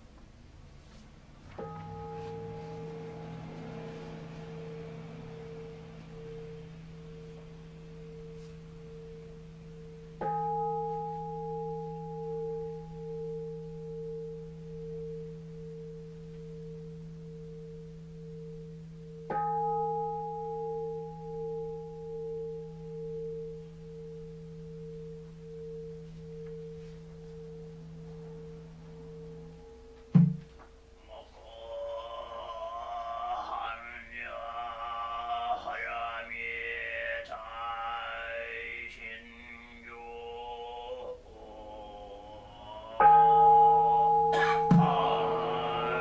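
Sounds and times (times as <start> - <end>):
low steady hum: 0.0 - 46.0
bowl bell ringing: 1.6 - 31.0, 42.2 - 46.0.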